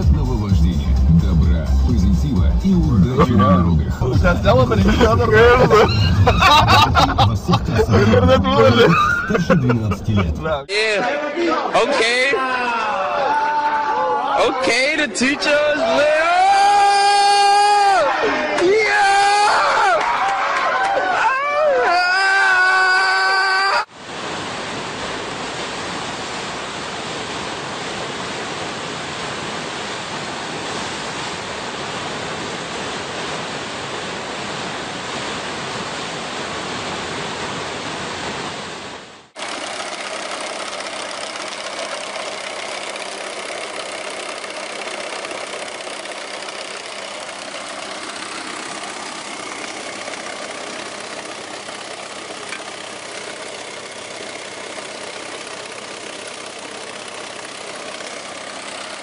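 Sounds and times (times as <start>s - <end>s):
steady noise with faint hum: 0.0s - 10.8s, 23.9s - 39.3s
white water rushing: 2.8s - 10.7s, 23.8s - 59.0s.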